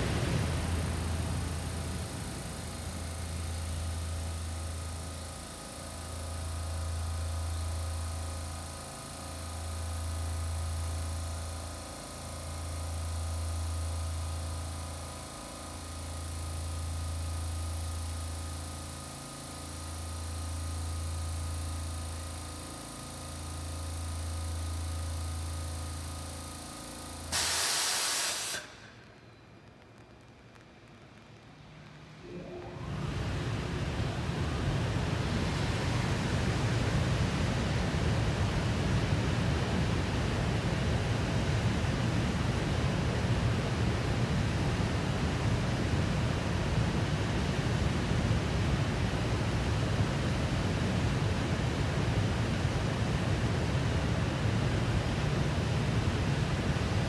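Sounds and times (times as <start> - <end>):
loud burst of hiss: 27.3 - 29.0.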